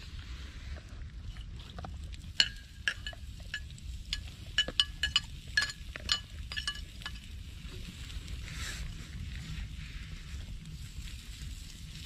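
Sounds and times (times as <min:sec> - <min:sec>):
low steady rumble: 0:00.0 - 0:12.0
utensil clinking in metal pot: 0:02.4 - 0:07.3.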